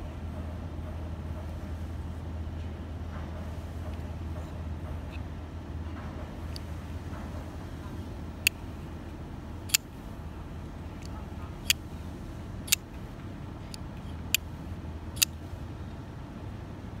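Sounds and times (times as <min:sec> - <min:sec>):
folding knife clicking open and shut: 0:12.7 - 0:12.9.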